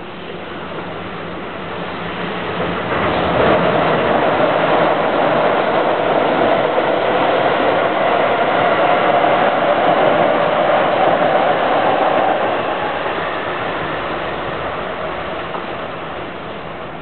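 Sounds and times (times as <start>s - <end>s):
electric train running past: 0.0s - 17.0s.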